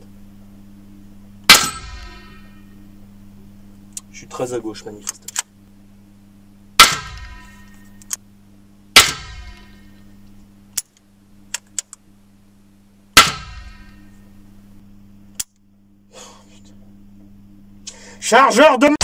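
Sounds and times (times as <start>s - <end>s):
steady low hum: 0.0s - 19.0s
rifle shots with ringing tail: 1.5s - 2.7s, 6.8s - 7.9s, 8.9s - 10.0s, 13.2s - 14.2s.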